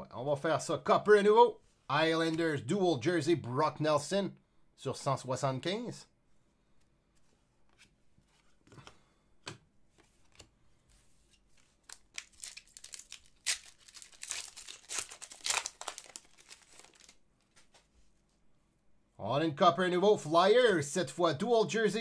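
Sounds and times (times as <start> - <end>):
foil wrapper tearing and crinkling: 11.8 - 17.2.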